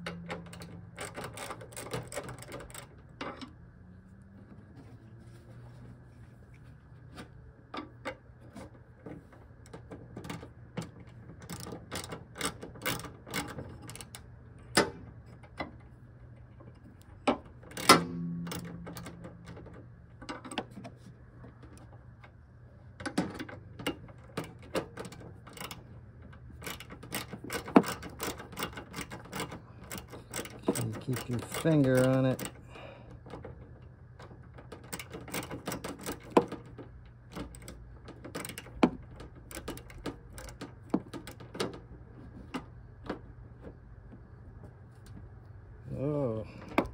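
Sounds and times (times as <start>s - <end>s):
ratcheting wrench clicking: 0.1s - 3.5s, 26.6s - 32.6s.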